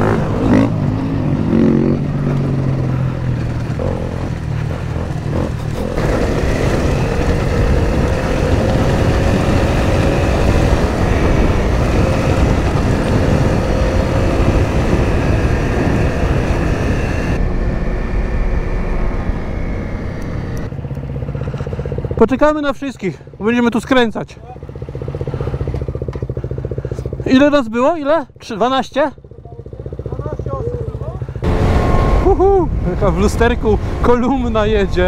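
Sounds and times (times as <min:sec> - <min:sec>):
motorcycle engine running: 0:00.0 - 0:35.0
wind noise on microphone: 0:05.0 - 0:20.7.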